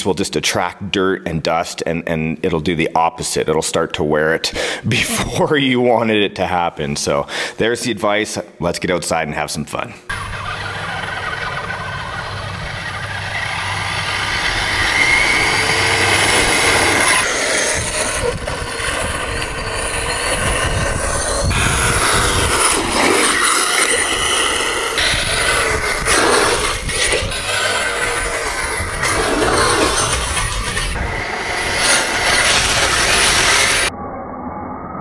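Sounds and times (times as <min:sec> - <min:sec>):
crunching gravel: 0:10.1 - 0:33.9
electric motor whine: 0:10.1 - 0:33.9.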